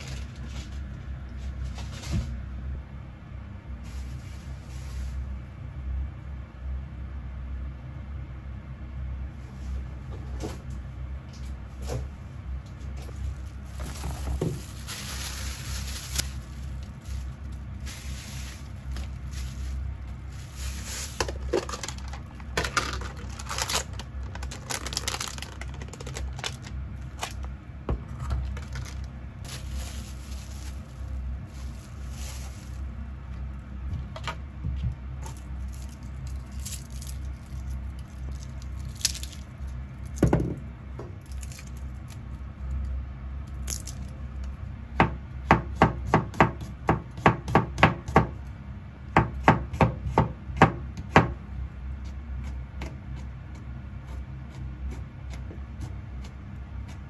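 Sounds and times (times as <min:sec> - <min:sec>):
rustling and handling noises: 0:00.0 - 0:02.5, 0:03.8 - 0:05.4, 0:09.4 - 0:44.2
steady low hum: 0:00.0 - 0:57.0
knife chopping on cutting board: 0:45.0 - 0:48.4.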